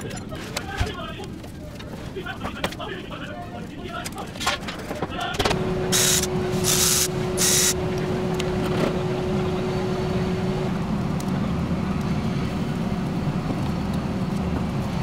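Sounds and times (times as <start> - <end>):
steady low hum: 4.4 - 15.0
power ratchet whirring: 5.9 - 7.8.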